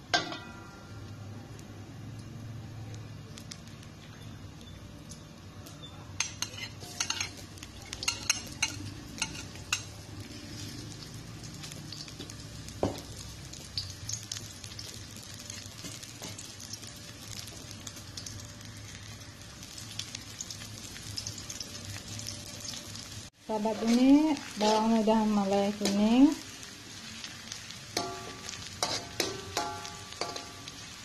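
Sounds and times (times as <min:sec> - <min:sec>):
shallots sizzling in oil: 0:00.0 - 0:31.0
metal spatula scraping wok: 0:06.2 - 0:10.9, 0:23.6 - 0:26.0, 0:28.0 - 0:31.0.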